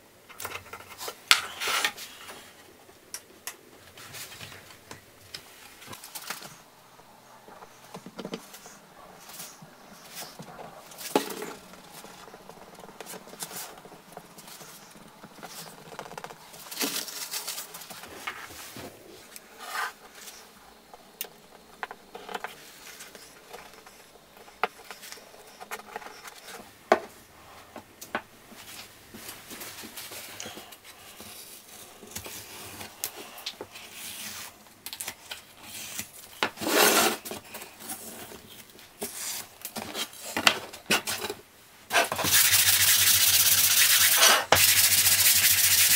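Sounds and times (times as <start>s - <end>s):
loud wooden rasp: 41.9s - 45.9s.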